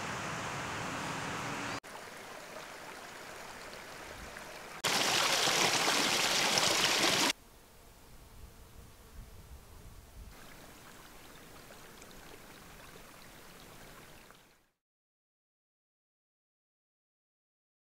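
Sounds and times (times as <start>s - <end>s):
running water rushing: 0.0s - 7.4s, 10.4s - 14.6s.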